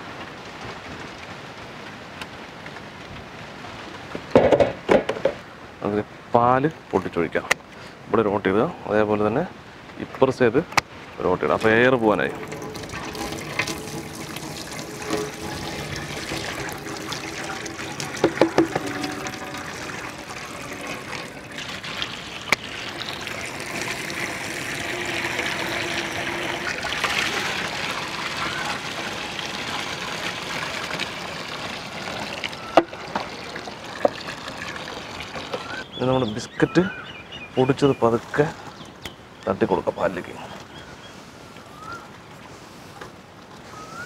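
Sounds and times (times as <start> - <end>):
milk pouring into a pot: 12.0 - 35.8
sharp knocks: 18.2 - 19.4.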